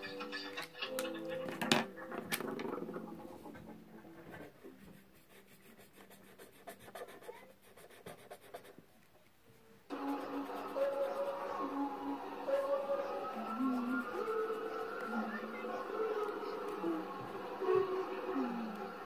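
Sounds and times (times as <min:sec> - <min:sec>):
music: 0:00.0 - 0:06.6, 0:09.9 - 0:19.0
marker scratching on paper: 0:04.3 - 0:08.8, 0:09.9 - 0:11.9, 0:12.6 - 0:16.3.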